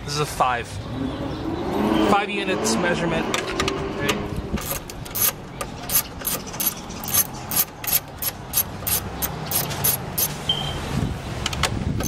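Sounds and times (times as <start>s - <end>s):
socket ratchet clicking: 4.6s - 10.3s.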